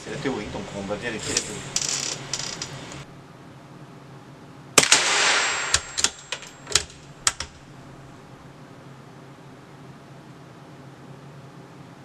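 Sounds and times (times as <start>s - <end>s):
suppressed rifle shot: 4.8s - 7.7s.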